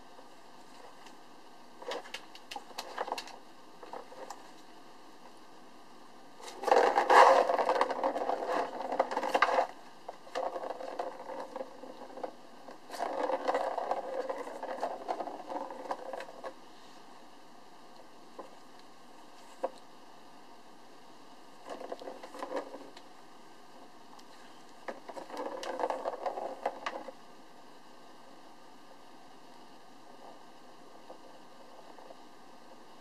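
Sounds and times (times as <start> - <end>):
kitten claws scraping cardboard: 6.4 - 16.5.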